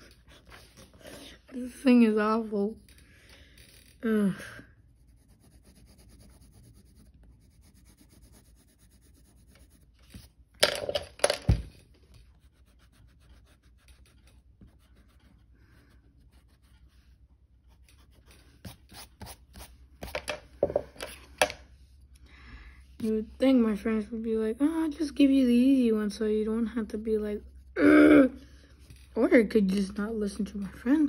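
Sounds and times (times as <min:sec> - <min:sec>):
eraser rubbing strokes: 0:04.9 - 0:10.3, 0:12.1 - 0:19.8
pencil scratching on paper: 0:04.9 - 0:10.3, 0:12.1 - 0:20.3
rubbing against paper: 0:04.9 - 0:10.4, 0:12.1 - 0:20.1.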